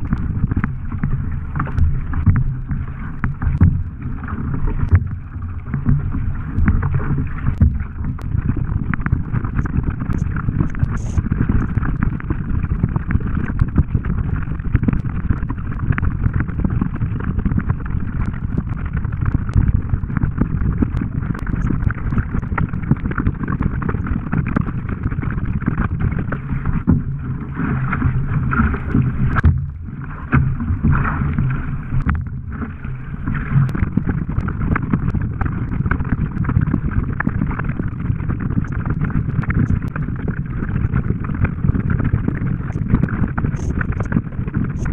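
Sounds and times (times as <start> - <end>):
paddle blades dipping in water: 0.0 - 44.9
water rushing along a hull: 0.0 - 44.9.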